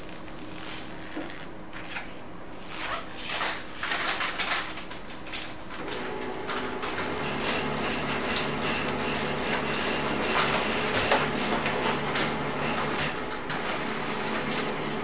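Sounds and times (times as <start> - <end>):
printer motor hum: 5.8 - 15.0.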